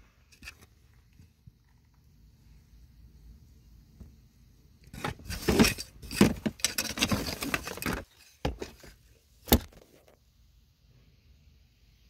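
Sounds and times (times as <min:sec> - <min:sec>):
rustling in plastic tub: 0:04.9 - 0:09.0.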